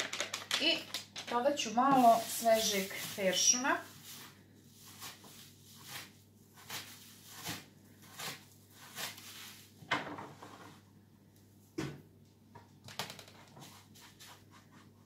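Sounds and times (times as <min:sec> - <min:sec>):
kitchen utensil scraping: 0:01.6 - 0:03.9.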